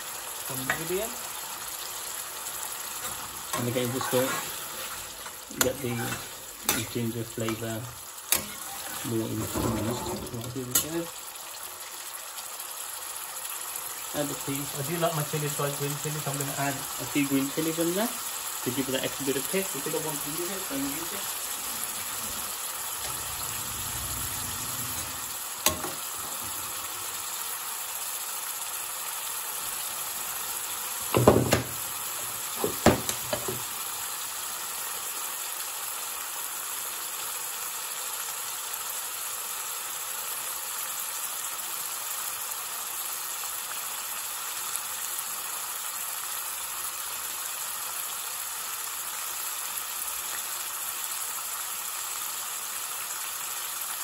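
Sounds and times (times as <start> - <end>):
curry sizzling in a pan: 0.0 - 54.0
metal ladle knocking and scraping pan: 3.0 - 7.6, 8.3 - 10.9, 24.8 - 26.6, 32.6 - 33.6.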